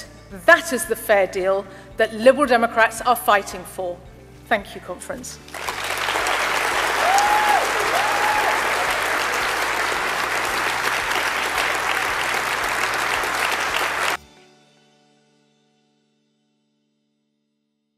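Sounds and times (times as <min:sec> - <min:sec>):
audience applauding: 0:05.5 - 0:14.2.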